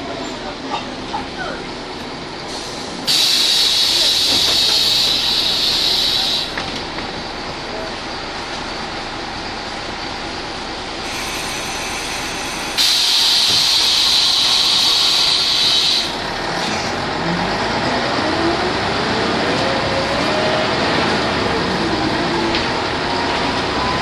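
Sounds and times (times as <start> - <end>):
bus diesel engine accelerating: 0.0 - 24.0
compressed air hissing: 2.5 - 6.6, 11.1 - 16.2.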